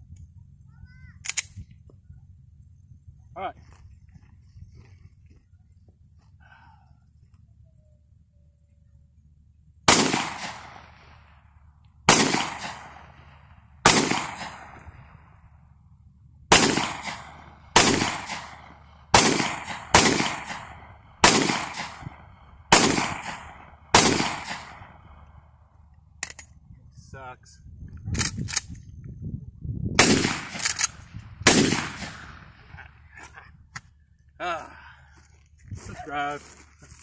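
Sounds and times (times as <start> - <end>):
pistol shots echoing: 9.9 - 11.4, 12.1 - 14.9, 16.5 - 25.2, 30.0 - 32.5.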